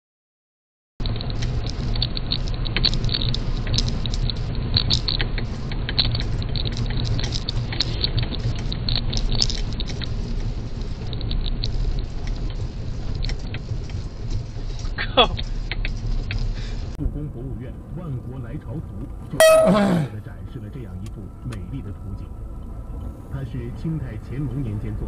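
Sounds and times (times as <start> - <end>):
small ticks and patter: 1.0 - 16.5
car road rumble: 1.0 - 25.0.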